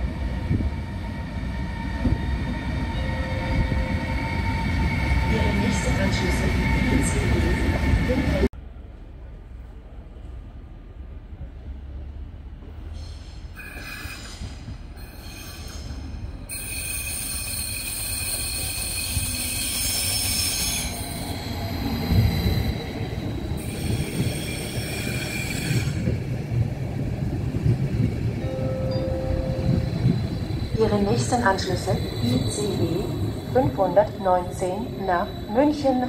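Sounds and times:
train rumble: 0:00.0 - 0:36.0
high-pitched train squeal: 0:13.0 - 0:26.1.

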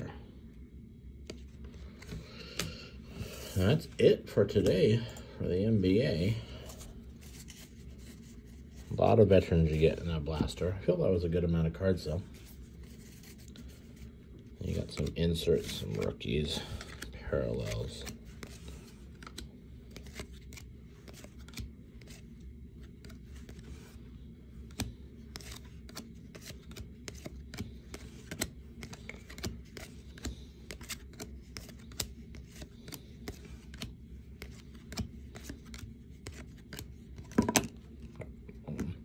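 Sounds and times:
low background hum: 0:00.0 - 0:39.0
cards clicking and flicking: 0:01.2 - 0:03.3, 0:13.1 - 0:24.0, 0:24.6 - 0:38.9.

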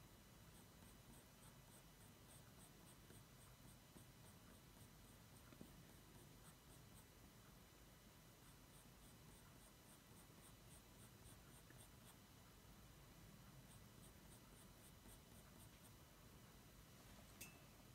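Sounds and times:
pencil scratching on paper: 0:00.5 - 0:07.1, 0:08.4 - 0:12.2, 0:13.6 - 0:16.0.

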